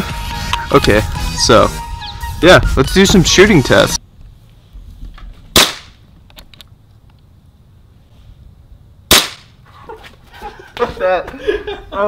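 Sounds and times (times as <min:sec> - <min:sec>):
pistol shot crack: 0:05.5 - 0:06.0, 0:09.1 - 0:09.5.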